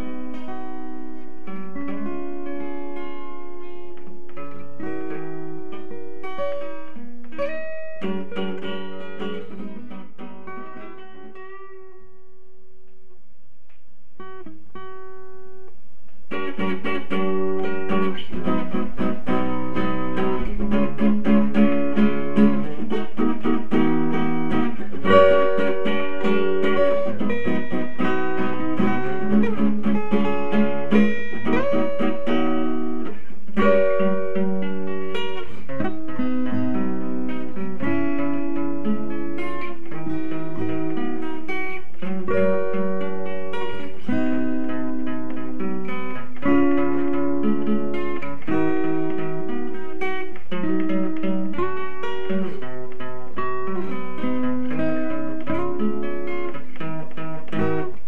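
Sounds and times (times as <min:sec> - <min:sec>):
guitar music: 0:00.0 - 0:58.0.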